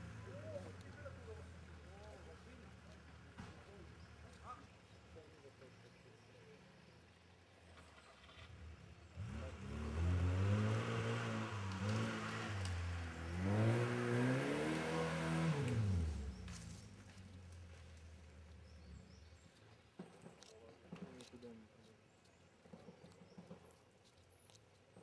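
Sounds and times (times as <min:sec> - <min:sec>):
car engine revving: 0:08.1 - 0:17.5.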